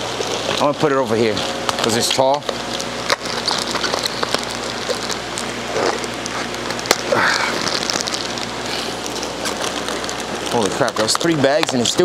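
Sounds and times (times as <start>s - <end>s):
plastic bags crinkling: 0.1s - 12.0s.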